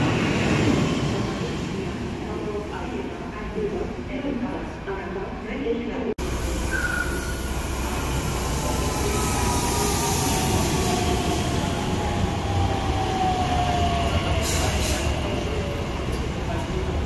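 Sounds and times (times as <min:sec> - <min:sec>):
train rumbling with whine: 0:06.2 - 0:17.0.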